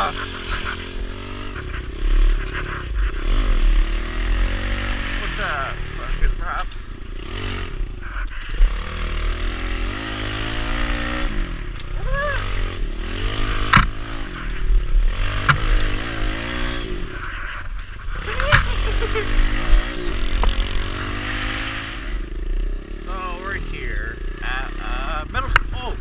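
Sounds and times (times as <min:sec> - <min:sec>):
motorbike engine revving: 0:00.0 - 0:26.0
sharp knocks: 0:13.6 - 0:14.1, 0:15.4 - 0:16.1.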